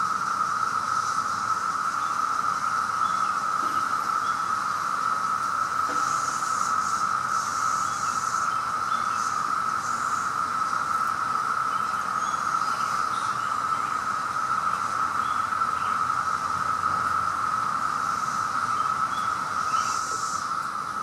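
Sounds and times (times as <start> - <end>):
cicadas chorus drone: 0.0 - 21.0.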